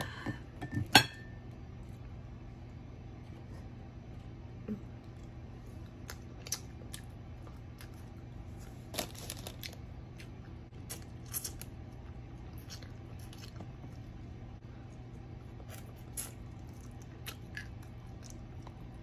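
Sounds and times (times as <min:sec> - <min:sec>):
low steady hum: 0:00.0 - 0:19.0
crunching of crisp chicken: 0:05.8 - 0:14.1.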